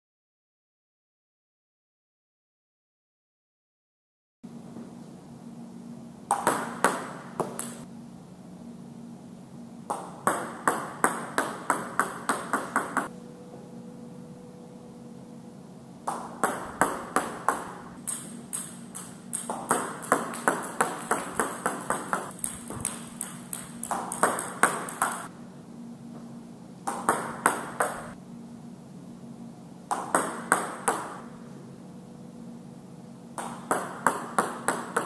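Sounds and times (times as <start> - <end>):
faint steady hum: 4.5 - 35.0
table tennis ball ticks: 16.4 - 25.3.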